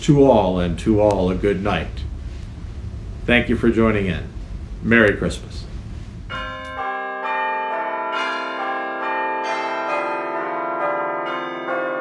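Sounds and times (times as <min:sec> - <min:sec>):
bells chiming: 0:06.3 - 0:12.0.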